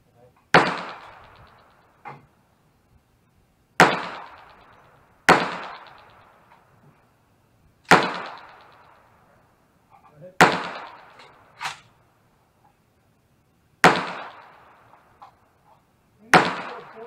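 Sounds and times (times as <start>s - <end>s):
gunshots with echo: 0.5s - 2.2s, 3.8s - 6.5s, 7.9s - 9.1s, 10.4s - 11.8s, 13.8s - 15.0s, 16.3s - 17.0s.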